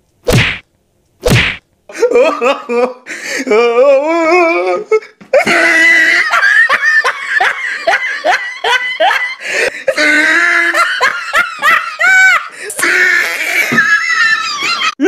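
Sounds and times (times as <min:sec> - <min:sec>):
loud laughter: 0:05.4 - 0:15.0.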